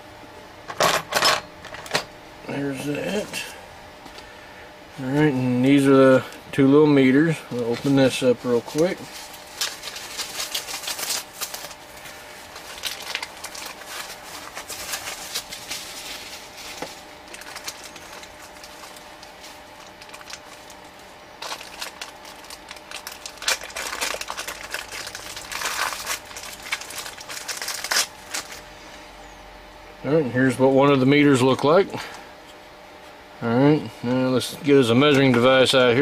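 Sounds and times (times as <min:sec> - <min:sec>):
packaging rustling and crinkling: 0:07.6 - 0:28.7.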